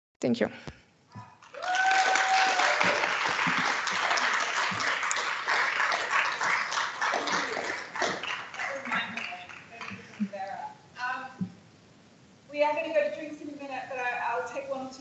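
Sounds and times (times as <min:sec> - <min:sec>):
audience applauding: 0:01.3 - 0:10.4.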